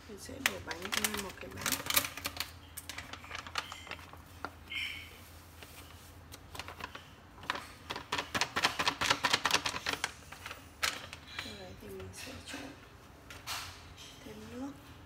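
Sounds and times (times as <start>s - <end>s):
plastic packet crinkling: 0.3s - 12.2s
crisp crackling clicks: 0.4s - 4.5s.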